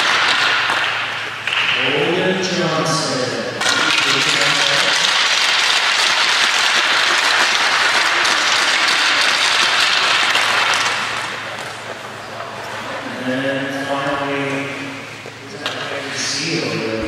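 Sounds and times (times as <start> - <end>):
crowd applauding: 0.0 - 16.8.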